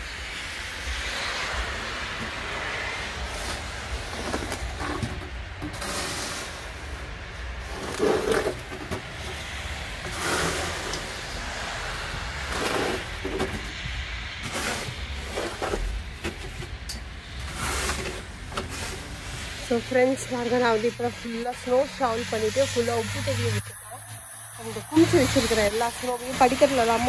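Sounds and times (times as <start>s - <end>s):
snow shovel scraping snow: 1.0s - 5.0s, 5.7s - 13.7s, 14.4s - 16.6s, 17.3s - 22.2s.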